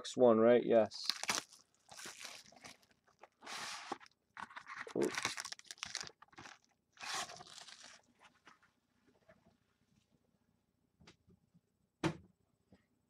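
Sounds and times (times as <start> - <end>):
plastic wrap tearing and crinkling: 0.9 - 8.1
cardboard box opening: 1.0 - 8.0
foil pack handled: 1.0 - 8.1.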